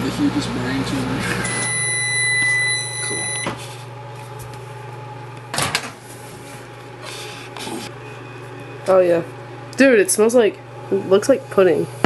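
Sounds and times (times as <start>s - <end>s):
microwave oven hum: 0.0s - 12.0s
long electronic beep: 1.5s - 3.5s.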